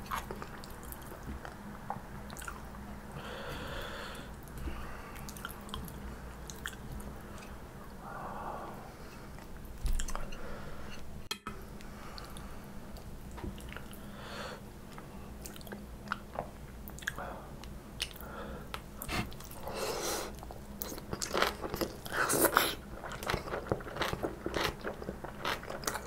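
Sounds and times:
close chewing: 20.4s - 26.0s.

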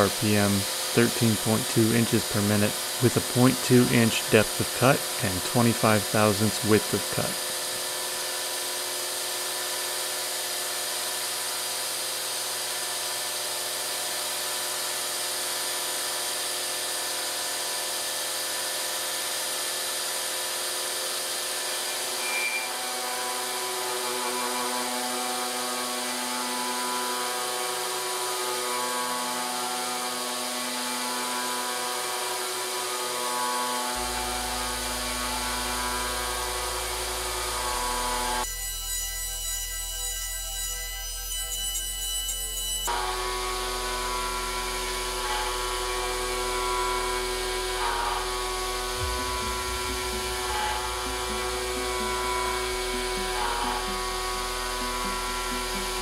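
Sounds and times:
milling spindle whine and hiss: 0.0s - 38.5s, 42.7s - 56.0s
background music with sustained chords: 22.8s - 38.5s, 42.8s - 56.0s.

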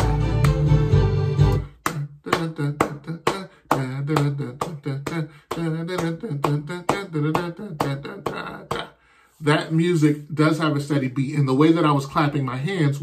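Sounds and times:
hand claps keeping a beat: 0.0s - 9.0s
recorded music: 0.0s - 11.0s
man wordless vocalizing: 1.6s - 13.0s.

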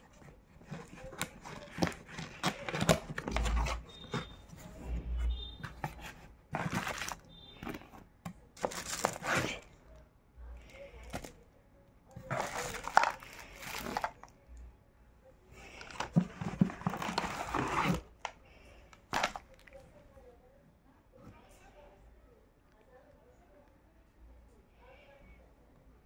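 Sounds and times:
plastic bags crinkling: 6.6s - 7.8s, 8.6s - 9.6s, 12.2s - 14.3s, 18.9s - 19.8s.

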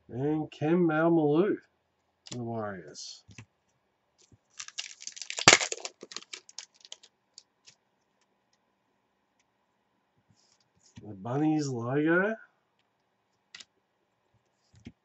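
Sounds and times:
foil pack crinkling and tearing: 4.5s - 7.1s
cards clicking: 4.6s - 7.1s.

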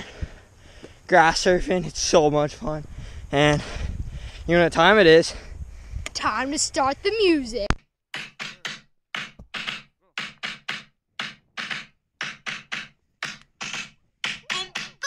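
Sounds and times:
sharp percussive beat: 8.2s - 15.0s.

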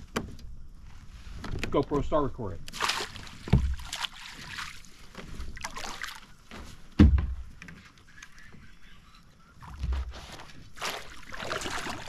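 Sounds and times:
paddle strokes swishing in water: 2.7s - 9.0s, 9.6s - 12.0s
loud thump: 6.9s - 7.5s.

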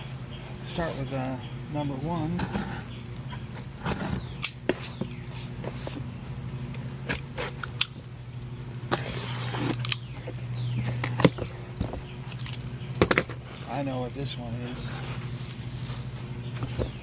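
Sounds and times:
steady low hum: 0.0s - 17.0s
box cutter slicing packing tape: 8.9s - 10.1s
tearing rasp: 8.9s - 10.1s.

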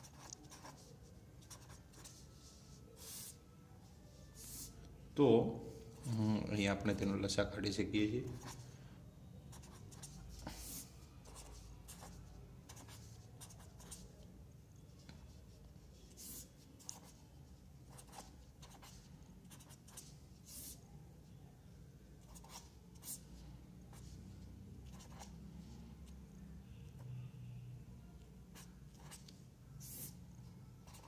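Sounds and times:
felt-tip pen scratching on paper: 0.0s - 2.3s, 9.5s - 14.1s, 16.0s - 17.2s, 17.9s - 20.8s, 24.8s - 25.4s, 28.5s - 30.2s.

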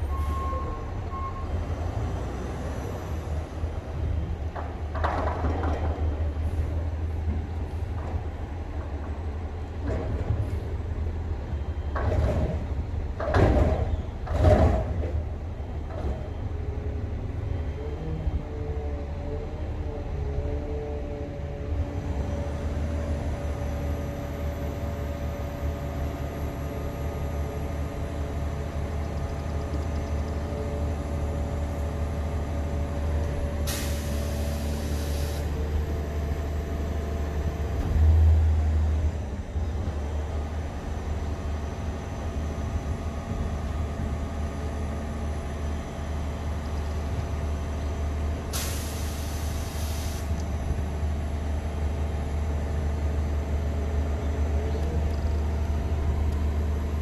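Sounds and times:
air bursts: 33.7s - 35.5s, 48.6s - 50.4s
air hiss: 48.6s - 50.4s.

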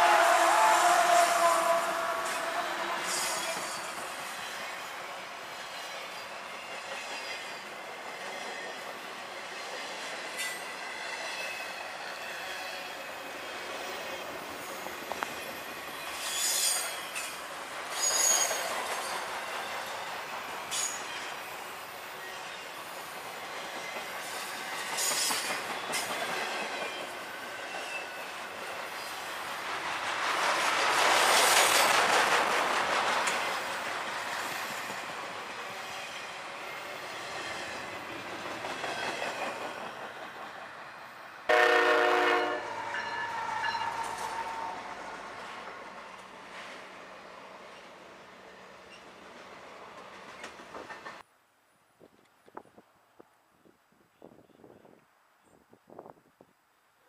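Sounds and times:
locomotive horn blast: 0.0s - 3.8s, 41.5s - 45.0s
faint rail squeal: 0.0s - 29.6s, 34.3s - 38.1s, 41.5s - 45.6s, 47.6s - 49.3s
train wheels clacking over rail joints: 23.1s - 28.0s, 29.6s - 35.6s, 49.9s - 51.3s.

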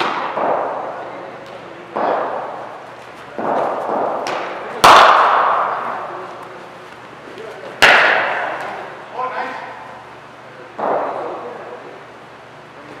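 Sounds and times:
cricket bat striking ball: 0.0s - 0.8s, 3.3s - 6.1s, 7.8s - 8.8s.

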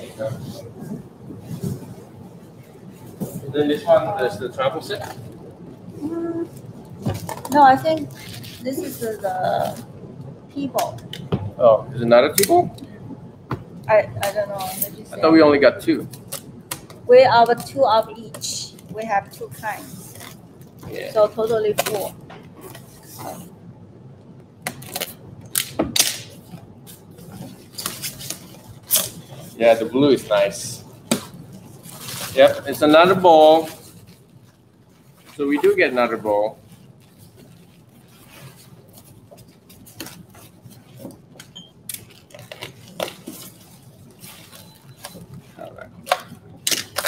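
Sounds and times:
plastic wrapping rustling: 0.0s - 10.1s, 15.9s - 23.6s, 24.6s - 47.0s.

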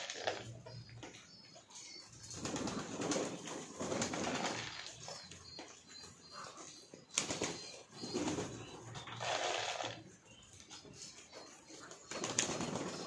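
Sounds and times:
wings flapping: 2.3s - 5.0s, 12.1s - 13.0s
pigeons cooing: 6.3s - 10.1s.

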